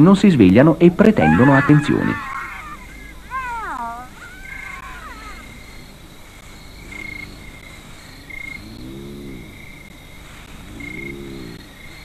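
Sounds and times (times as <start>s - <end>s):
hyena low rising call: 1.2s - 5.6s
insect chirping: 1.2s - 12.0s.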